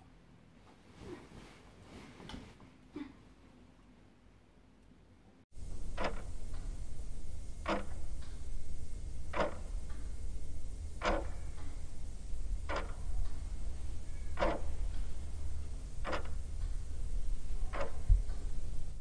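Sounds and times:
low steady hum: 0.0s - 19.0s
clock ticking: 5.9s - 6.6s, 7.6s - 8.3s, 9.3s - 9.7s, 11.0s - 11.7s, 12.6s - 13.4s, 14.4s - 15.0s, 16.0s - 16.8s, 17.7s - 18.4s.

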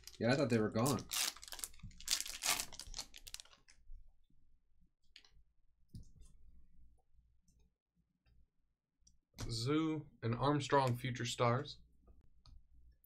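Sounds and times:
foil wrapper crinkling and tearing: 0.0s - 3.7s.

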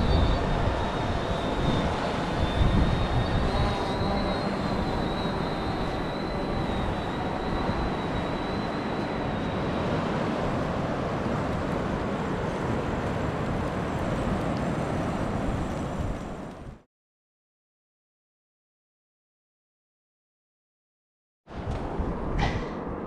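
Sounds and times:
drone propellers whining: 0.0s - 16.5s
wind noise on microphone: 0.0s - 16.8s, 21.5s - 23.0s.

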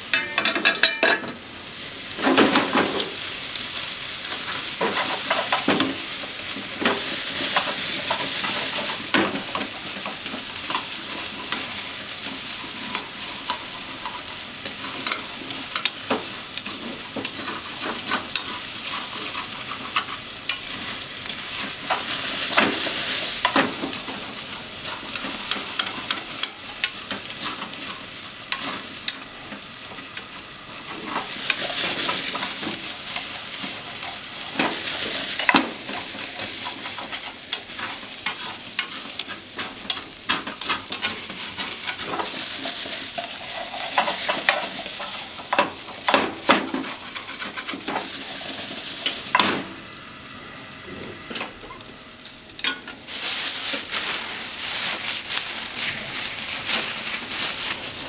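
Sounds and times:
food sizzling in a frying pan: 0.0s - 58.0s
spatula scraping a pan: 6.6s - 28.8s, 30.8s - 49.2s.

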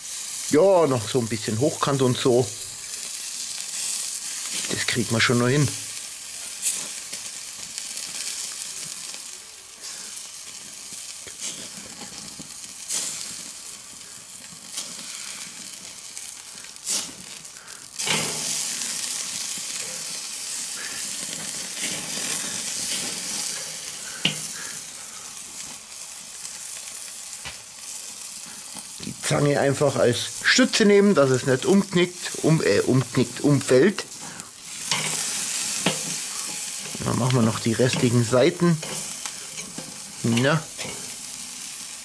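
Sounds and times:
meat sizzling on charcoal grill: 0.0s - 42.0s
fat flaring up in embers: 0.1s - 42.0s
metal tongs clicking on grate: 34.9s - 35.2s, 35.8s - 36.1s, 37.8s - 38.2s, 38.8s - 41.1s.

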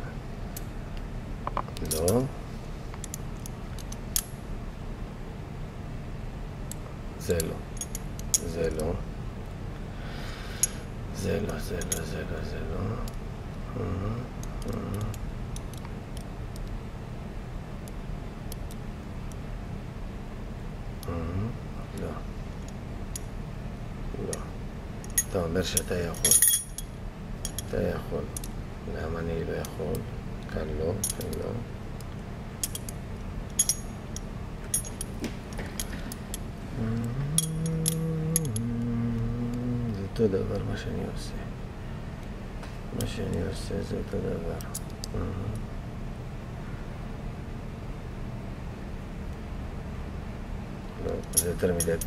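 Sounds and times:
man humming: 13.7s - 15.2s, 21.0s - 22.2s, 36.6s - 40.7s, 45.1s - 45.7s.

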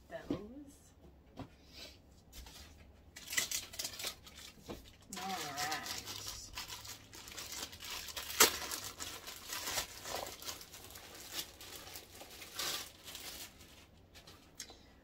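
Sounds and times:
plastic bag crinkling: 3.1s - 14.6s.

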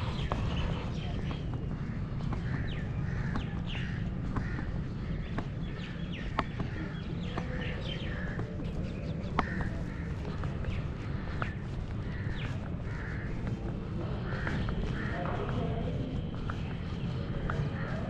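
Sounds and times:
birds chirping and calling: 0.0s - 18.0s
steady low rumble: 0.0s - 18.0s
crows cawing: 1.2s - 16.7s.

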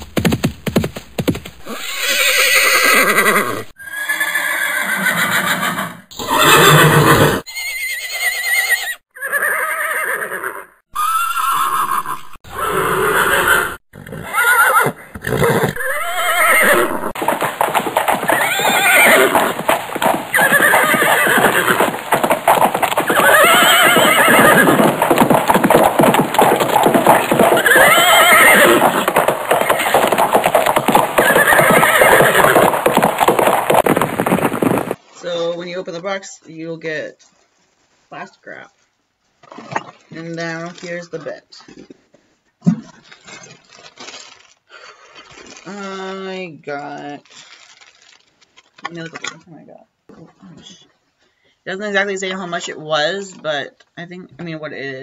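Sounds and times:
horse whinnying: 1.6s - 35.0s.

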